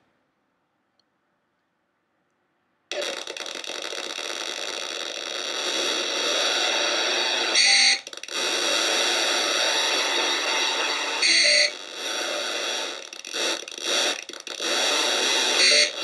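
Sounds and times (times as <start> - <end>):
electronic glitch noise: 2.9 - 16.0
bright electronic squeal: 5.1 - 13.1, 14.8 - 16.0.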